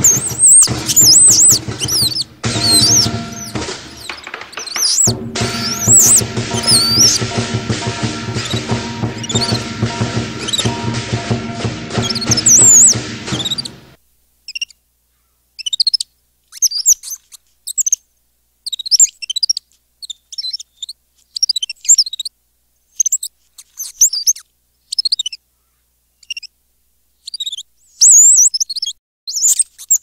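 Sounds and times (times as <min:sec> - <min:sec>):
bird chirping: 0:00.0 - 0:14.8, 0:27.2 - 0:30.0.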